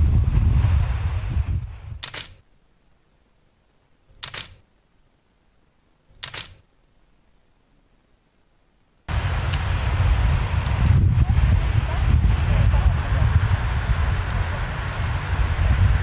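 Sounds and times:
low rumble: 0.0 - 2.0, 9.1 - 16.0
wind on microphone: 0.0 - 2.4, 9.1 - 16.0
camera shutter clicks: 2.0 - 2.4, 4.2 - 4.6, 6.1 - 6.6.

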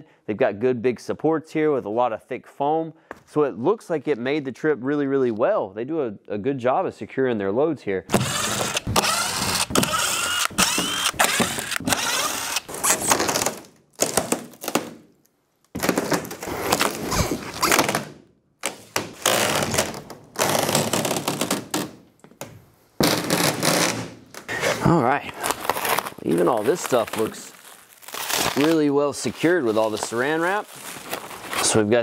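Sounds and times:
cordless drill motor whining: 8.1 - 13.0.

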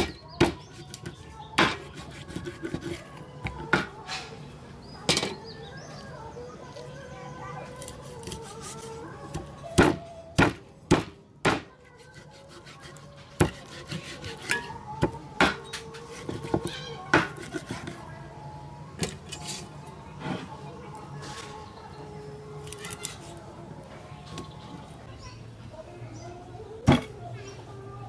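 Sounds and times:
cleaver chopping on wooden board: 1.6 - 3.9, 9.4 - 11.7, 13.4 - 17.8.

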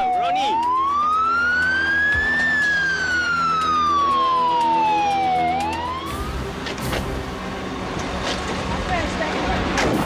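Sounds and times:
ambulance siren wailing: 0.0 - 6.8
low vehicle rumble: 0.7 - 10.0.

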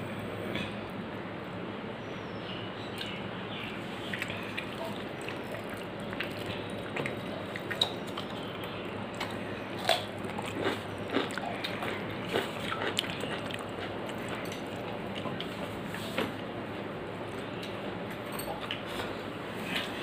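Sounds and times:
low background hum: 0.0 - 20.0
chewing and mouth smacks: 4.1 - 15.7.

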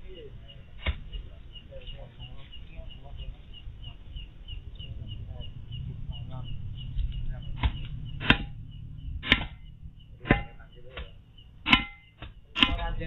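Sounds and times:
faint voices: 0.0 - 9.0, 9.7 - 11.6
sharp knocks: 6.9 - 13.0.

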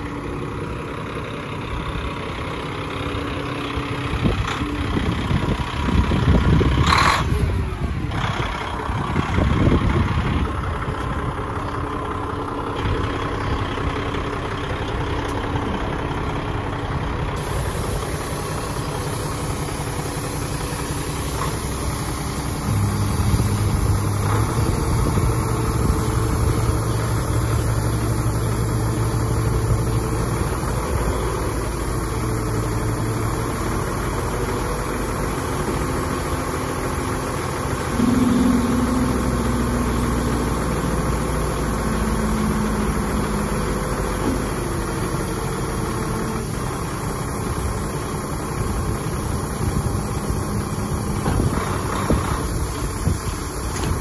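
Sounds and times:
diesel truck engine: 0.0 - 54.0.

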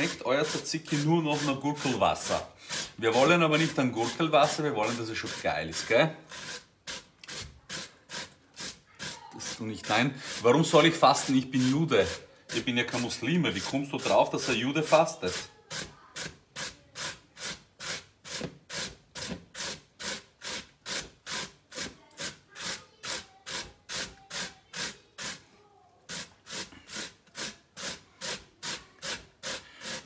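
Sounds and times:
cucumber grated on metal grater: 0.0 - 25.5, 26.1 - 30.0.

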